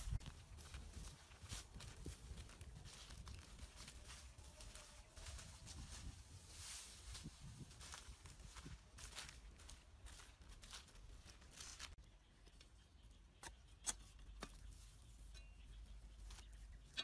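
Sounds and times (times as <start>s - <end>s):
straw rustling and crackling: 0.0s - 12.0s.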